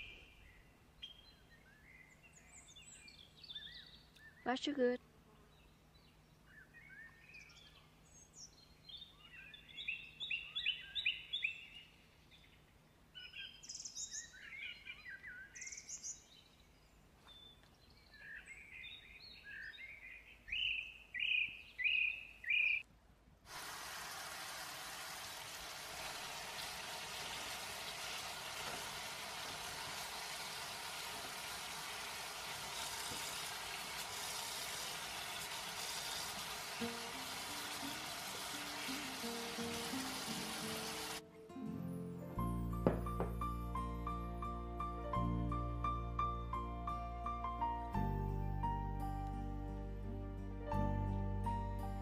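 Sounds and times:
small birds chirping: 0.0 - 22.8
tap water running into a colander: 23.5 - 41.2.

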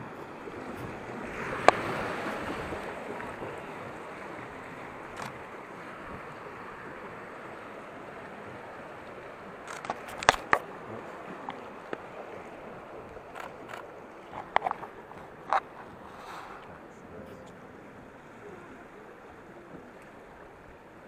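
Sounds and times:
fast river water rushing: 0.0 - 21.0
camera handling clicks and knocks: 9.7 - 10.6.

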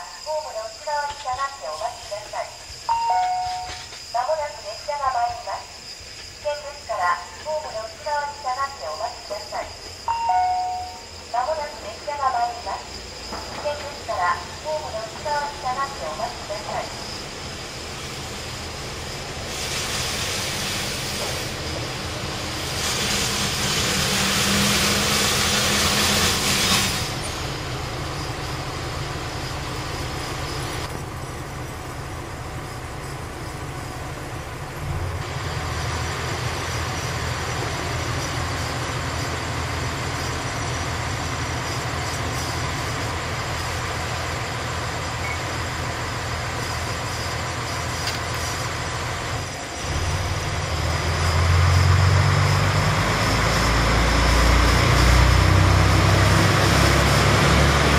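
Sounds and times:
train wheel and brake noise: 0.0 - 57.9
diesel engine rumble: 13.4 - 57.9.

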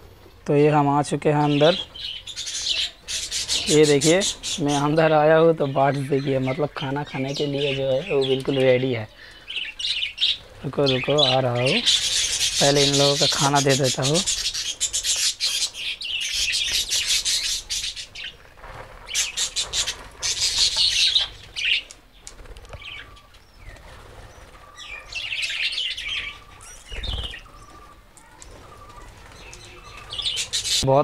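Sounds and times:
budgerigars chirping and chattering: 1.3 - 22.0, 22.7 - 31.0
wing flutters: 9.8 - 30.8.

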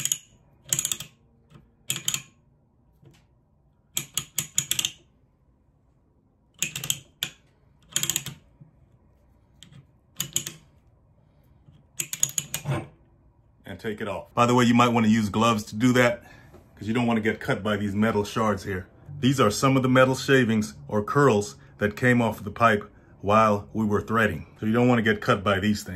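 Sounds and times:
rapid metal ratchet clicking: 0.0 - 1.2, 6.6 - 8.4.

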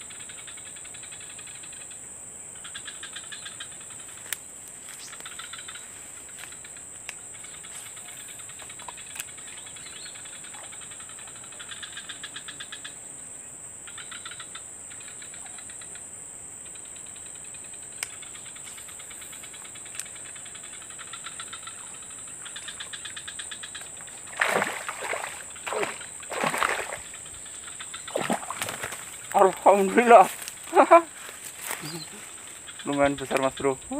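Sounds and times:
insects droning: 0.0 - 33.9
insects pulsing chirps: 0.0 - 33.9
faint sharp clicks: 4.3 - 4.5, 7.0 - 7.2, 17.9 - 18.8, 19.9 - 20.2.

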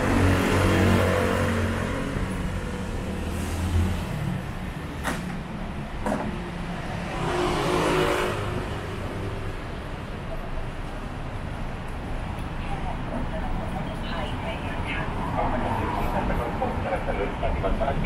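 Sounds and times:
vehicle passing: 0.0 - 5.0, 6.4 - 10.1.

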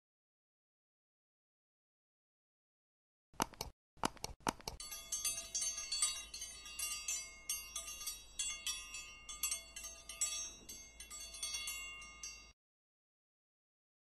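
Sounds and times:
tinkling chimes: 4.8 - 12.6.

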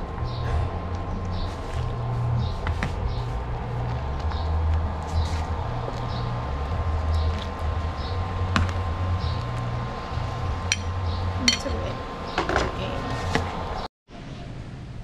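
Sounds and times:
low rumble: 0.0 - 12.2
utensils and dishes clinking: 10.7 - 13.3.

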